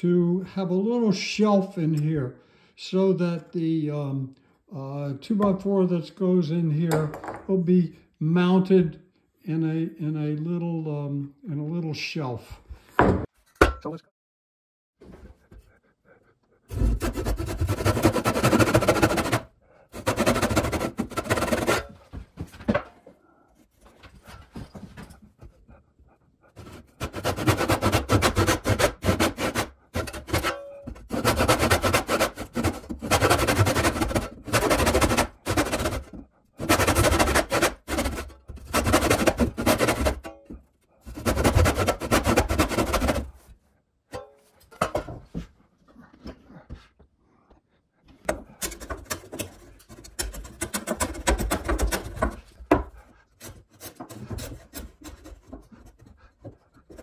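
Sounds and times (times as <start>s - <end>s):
handsaw cutting wood: 16.7s - 22.0s, 26.5s - 40.3s, 41.0s - 43.4s, 48.6s - 57.0s.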